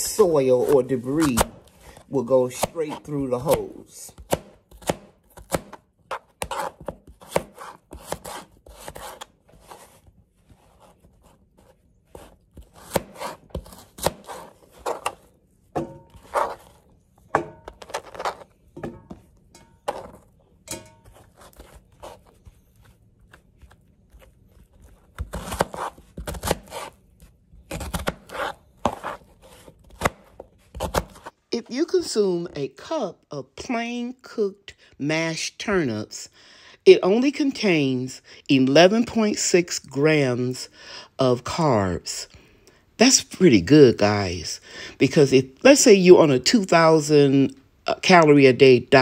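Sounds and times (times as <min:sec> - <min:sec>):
knife chopping on cutting board: 0:04.2 - 0:09.3, 0:12.2 - 0:15.2, 0:25.1 - 0:27.0.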